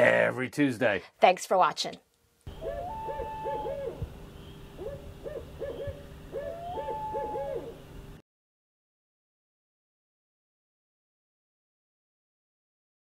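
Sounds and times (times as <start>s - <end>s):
owl hooting: 2.5s - 7.9s.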